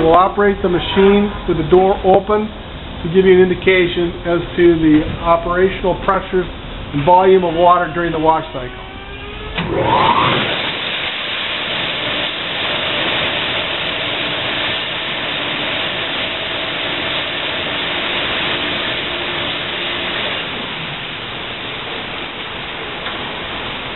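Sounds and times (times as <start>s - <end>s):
heavy water spray: 9.6s - 23.9s.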